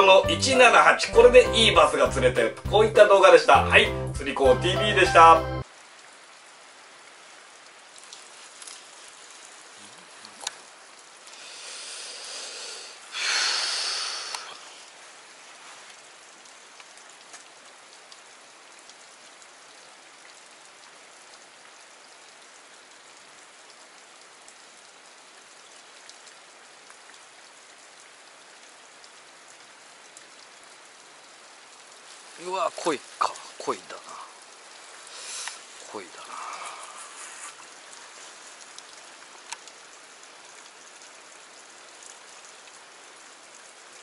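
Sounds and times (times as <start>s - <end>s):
creek water flowing: 0.0s - 5.7s, 7.6s - 17.6s, 31.1s - 44.0s.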